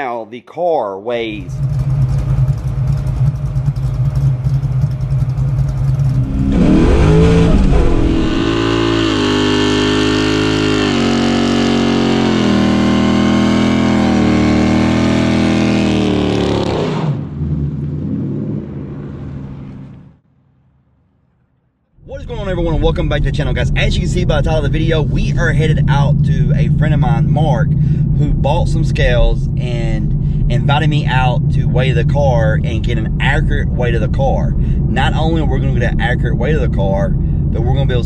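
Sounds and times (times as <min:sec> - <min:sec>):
car engine idling: 0:01.5 - 0:09.2, 0:22.0 - 0:38.0
car engine revving hard: 0:06.0 - 0:18.6.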